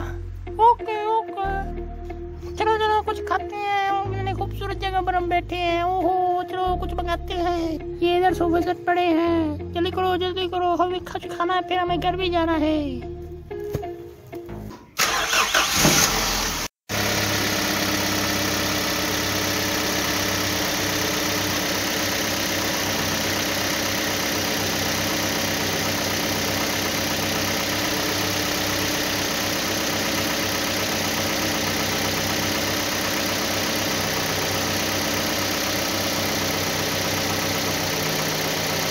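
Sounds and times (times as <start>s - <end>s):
engine starting: 15.0s - 18.2s
vehicle engine idling: 16.3s - 38.9s.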